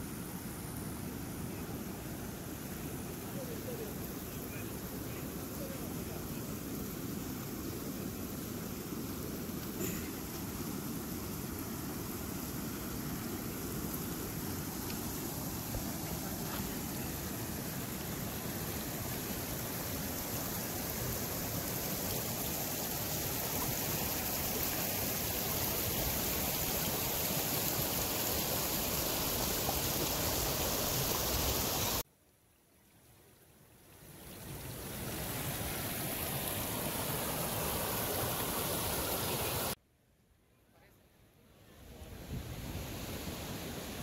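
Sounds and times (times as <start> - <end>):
river water rushing over rocks: 7.9 - 32.0, 34.4 - 39.8.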